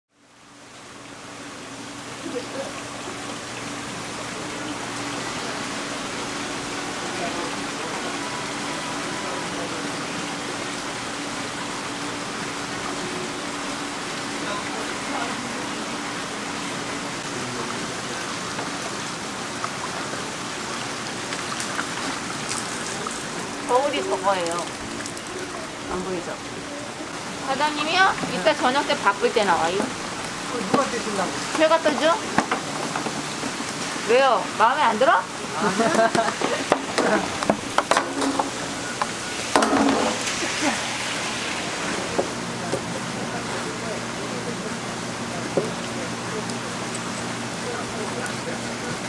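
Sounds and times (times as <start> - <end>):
water running and splashing: 0.2 - 49.0.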